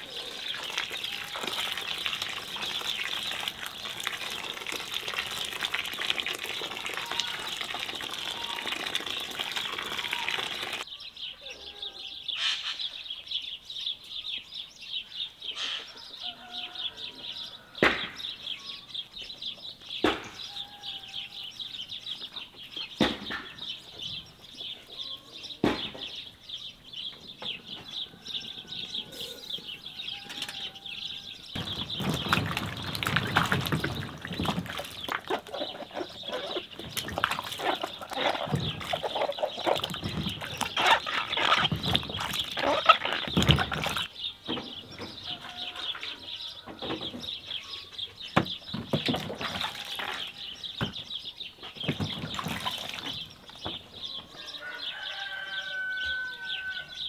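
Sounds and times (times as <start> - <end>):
water pouring into metal basin: 0.0 - 10.8, 31.6 - 35.6, 36.7 - 44.1
water sloshing in basin: 0.0 - 10.8, 31.6 - 44.1, 48.8 - 50.4, 51.8 - 53.6
birds chirping: 0.0 - 57.0
hens clucking: 31.6 - 44.1.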